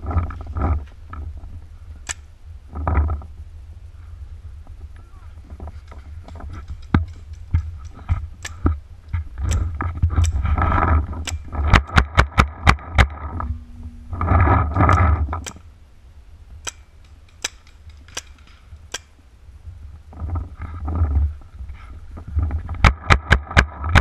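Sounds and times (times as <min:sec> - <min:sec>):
microphone handling rumble: 0:04.0 - 0:15.7, 0:19.6 - 0:24.0
paintball markers firing: 0:16.7 - 0:19.2.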